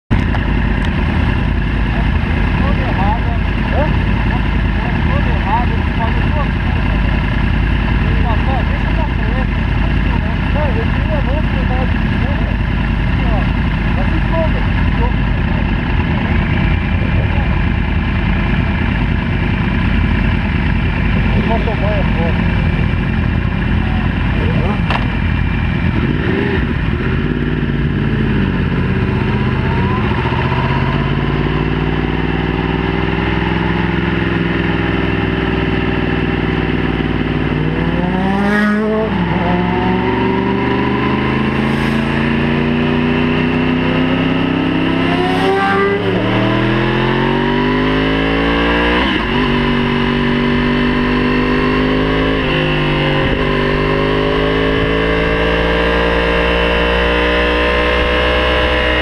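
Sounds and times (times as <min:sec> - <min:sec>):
sport bike accelerating hard: 0:00.1 - 0:59.0.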